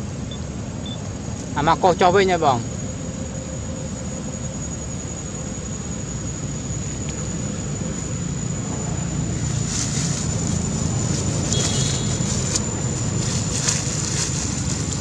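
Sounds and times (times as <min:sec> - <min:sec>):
thin high whine: 0:00.0 - 0:15.0
dry leaves crackling: 0:09.1 - 0:15.0.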